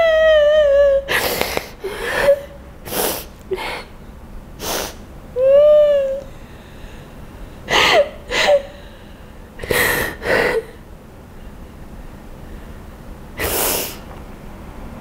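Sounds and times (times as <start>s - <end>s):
woman crying and sniffling: 0.0s - 4.0s, 7.6s - 10.9s.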